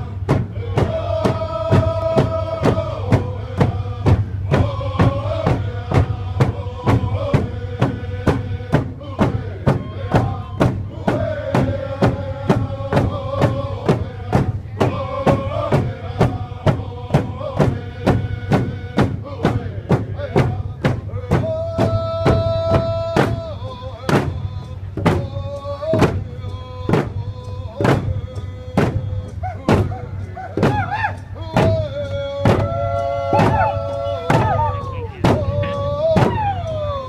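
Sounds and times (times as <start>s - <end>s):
group of voices chanting: 0.0s - 18.8s, 32.4s - 37.0s
hand drum beating: 32.5s - 36.8s.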